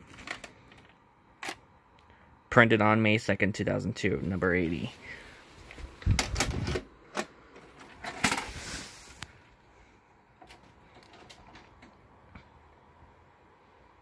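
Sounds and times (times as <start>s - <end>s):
cassette clicks and knocks: 6.0s - 8.5s
rustle: 7.7s - 11.7s.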